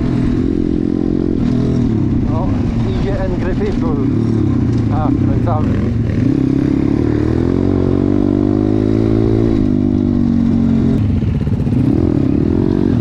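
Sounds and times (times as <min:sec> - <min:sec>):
dirt bike engine accelerating: 0:00.0 - 0:13.0.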